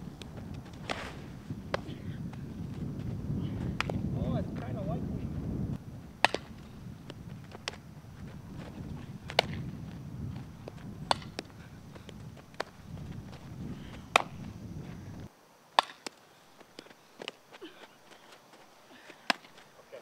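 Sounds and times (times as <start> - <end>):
softball hitting bat and gloves: 0.2 - 4.1, 6.1 - 14.5, 15.7 - 17.8, 19.1 - 19.6.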